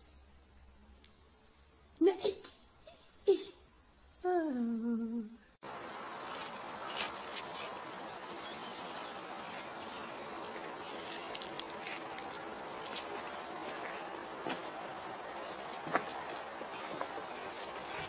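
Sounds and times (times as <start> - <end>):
paws scraping dry dirt: 5.6 - 18.0.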